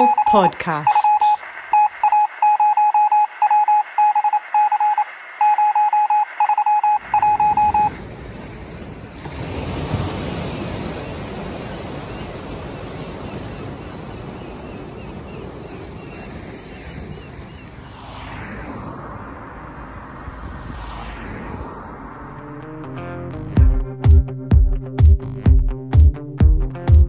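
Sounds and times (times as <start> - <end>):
morse-like electronic beeps: 0.0 - 7.9
surf breaking: 7.1 - 19.0.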